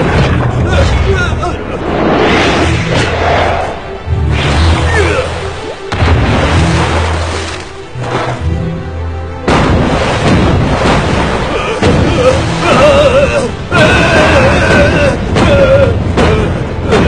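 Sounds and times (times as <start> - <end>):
film soundtrack music: 0.0 - 17.0
deep booming rumbles: 9.4 - 12.9.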